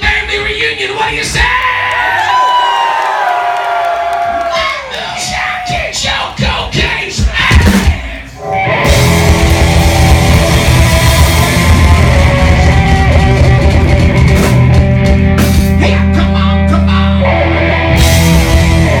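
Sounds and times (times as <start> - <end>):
drums pounding: 4.1 - 16.5, 17.8 - 19.0
bass guitar: 5.2 - 19.0
distorted electric guitars: 7.5 - 19.0.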